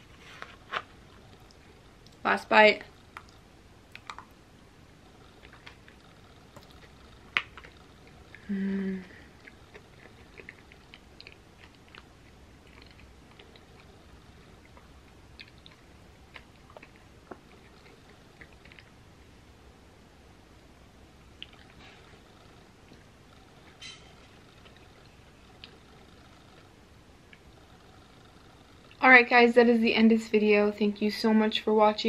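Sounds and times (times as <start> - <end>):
wet mouth clicks and smacks: 3.1 - 4.3
person chewing: 3.1 - 4.4, 5.2 - 19.0, 21.2 - 27.5
person humming mm: 8.4 - 9.4.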